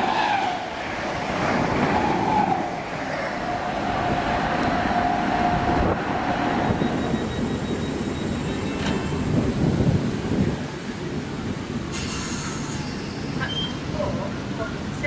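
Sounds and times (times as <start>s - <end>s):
train rumble: 0.0s - 15.0s
high-pitched train whine: 1.8s - 10.0s, 11.9s - 14.0s.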